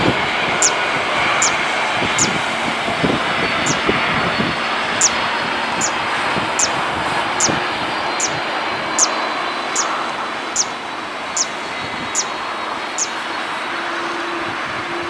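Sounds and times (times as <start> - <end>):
jet engines running: 0.0 - 15.0.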